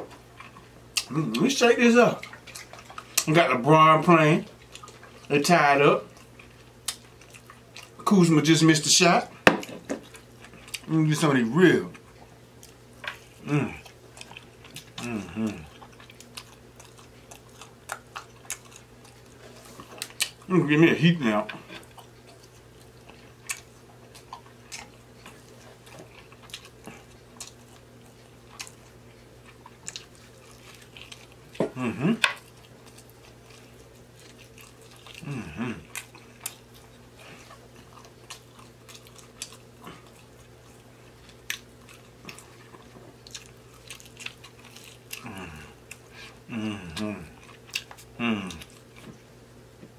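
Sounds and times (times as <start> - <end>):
chewing with wet mouth clicks: 0.1 - 3.4, 4.4 - 5.4, 6.0 - 8.0, 9.6 - 11.0, 11.9 - 20.5, 21.5 - 49.2
person humming: 13.4 - 13.8, 15.0 - 15.7, 31.6 - 32.2, 35.2 - 35.9, 45.2 - 45.8, 46.4 - 47.4, 48.2 - 48.7.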